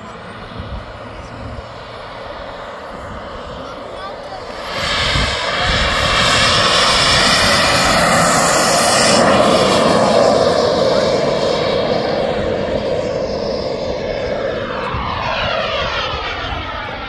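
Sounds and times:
jet turbine rushing: 0.0 - 17.0.

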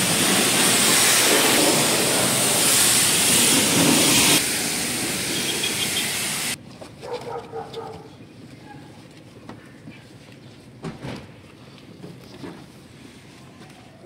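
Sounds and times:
high-pressure water spraying: 0.0 - 6.6.

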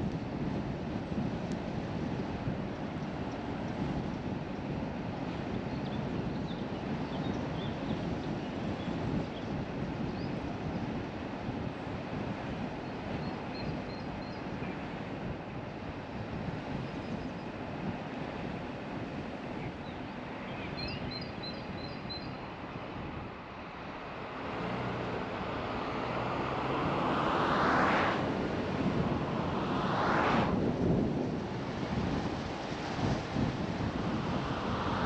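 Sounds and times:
car road and wind noise: 0.0 - 35.0
cars whooshing past: 23.7 - 35.0.

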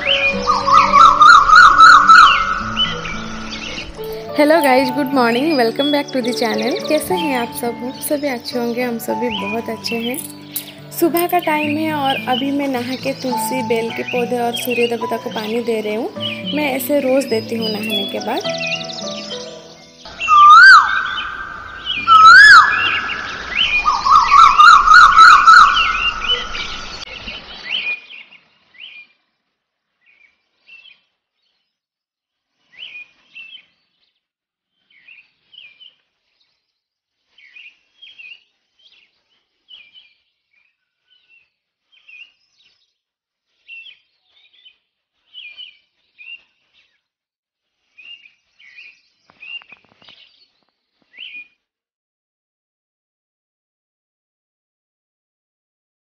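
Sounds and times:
music with sliding melody: 0.0 - 20.1
small birds chirping: 0.0 - 31.8, 32.6 - 47.1, 47.8 - 51.6.

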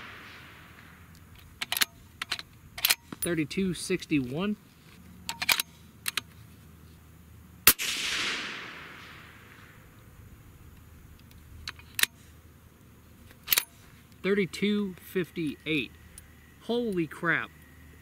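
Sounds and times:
suppressed rifle shot: 0.0 - 1.0, 7.7 - 9.9.

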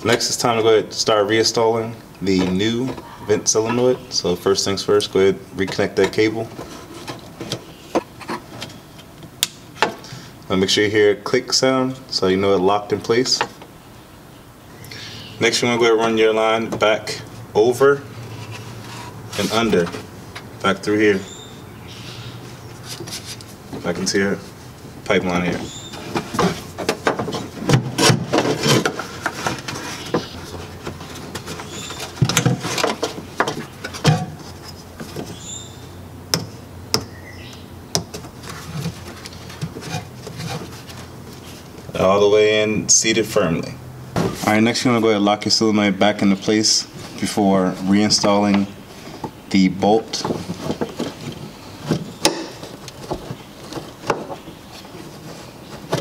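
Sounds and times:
rustling handling noise: 0.0 - 9.2, 15.6 - 21.3, 22.4 - 35.7, 38.0 - 42.2, 44.1 - 56.0
hose rubbing and scraping: 18.1 - 20.1, 38.4 - 41.8.

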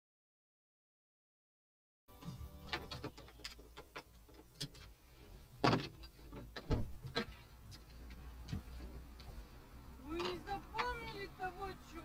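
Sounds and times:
car engine and road hum: 2.1 - 12.0
sharp clicks and knocks: 2.6 - 4.9.

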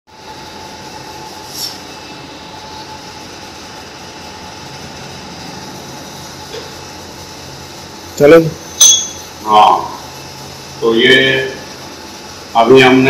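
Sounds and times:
workshop machinery hum: 0.1 - 13.0
short metallic clink: 8.8 - 9.3.

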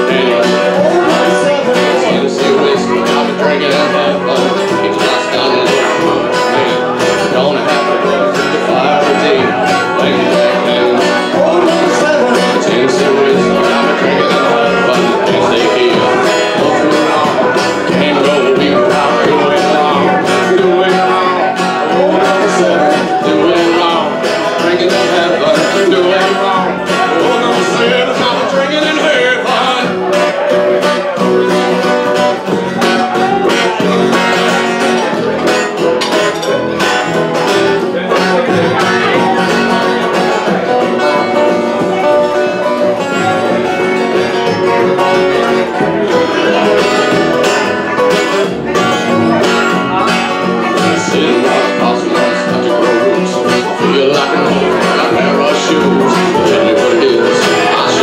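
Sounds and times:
acoustic guitar strumming: 0.0 - 58.0
banjo: 0.0 - 58.0
mandolin: 0.0 - 58.0
upright bass plucked: 0.0 - 58.0.

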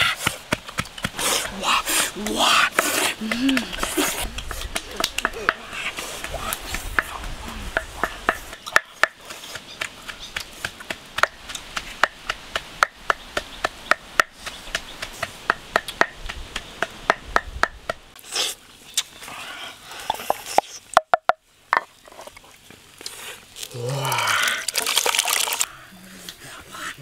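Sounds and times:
pestle pounding in clay mortar: 0.0 - 1.2, 7.7 - 18.0.

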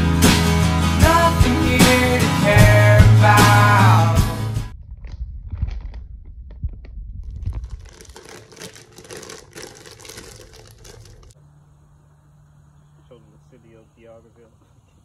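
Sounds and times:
plastic bag crinkling: 4.8 - 11.4.

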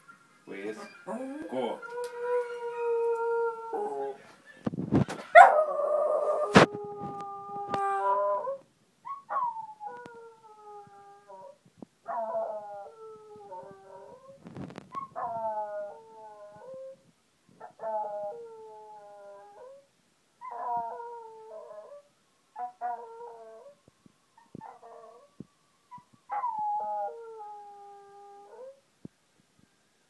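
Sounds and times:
dog howling: 0.9 - 4.2.

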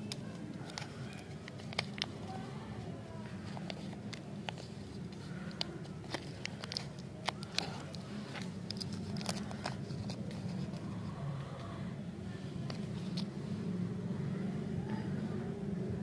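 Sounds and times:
paper wrapper crinkling: 0.0 - 2.4, 3.3 - 11.0.

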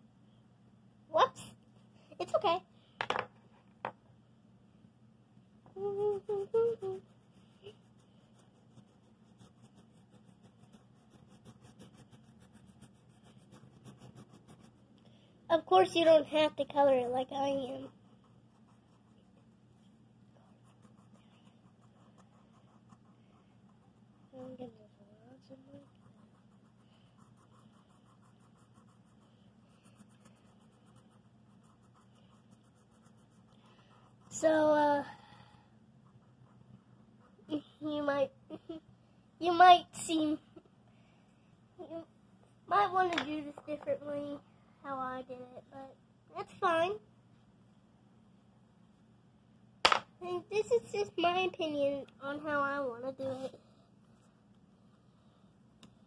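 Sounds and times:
person humming: 5.7 - 7.1
crayon scribbling on paper: 6.1 - 14.8, 16.8 - 19.6, 20.3 - 24.5, 25.7 - 34.6.

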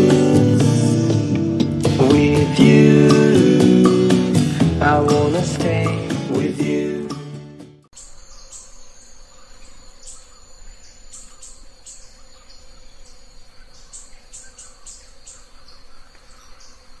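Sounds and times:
insects chirping: 7.9 - 17.0
high insect drone: 8.0 - 17.0.

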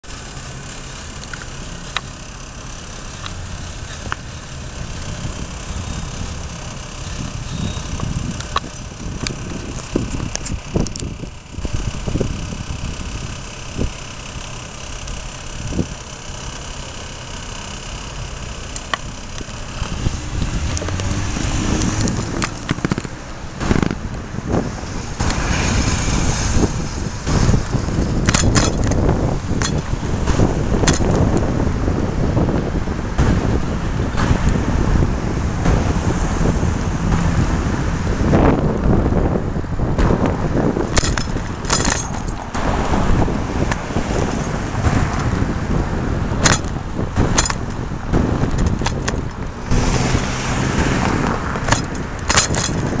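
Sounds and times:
road traffic: 0.0 - 53.0
bicycle rattling and knocking: 0.7 - 17.0, 17.8 - 25.4, 26.5 - 31.7, 39.8 - 53.0
wind rumbling on microphone: 3.6 - 14.1, 15.6 - 16.0, 18.9 - 53.0.

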